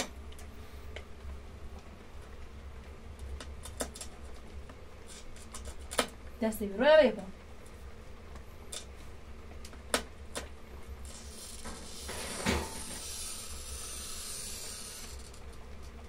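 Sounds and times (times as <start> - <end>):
tool scratching across glass: 11.0 - 15.4.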